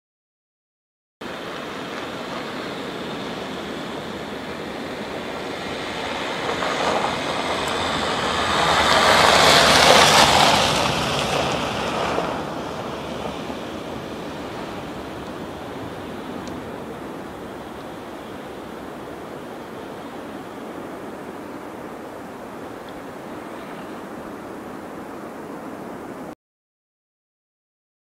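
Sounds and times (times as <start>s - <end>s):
van driving past on snow: 1.3s - 20.6s.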